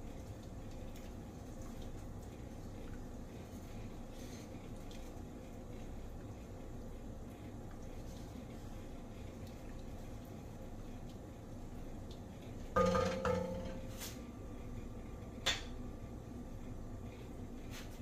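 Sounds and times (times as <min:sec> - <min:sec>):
spoon knocking on pot rim: 0:12.8 - 0:13.9.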